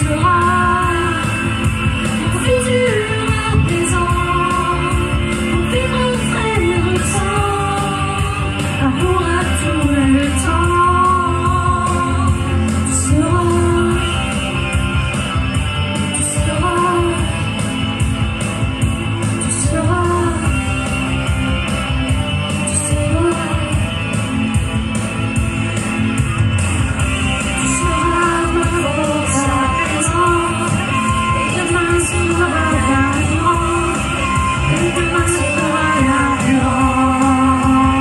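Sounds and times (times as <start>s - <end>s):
amplified backing music: 0.0s - 38.0s
man singing into microphone: 27.6s - 38.0s.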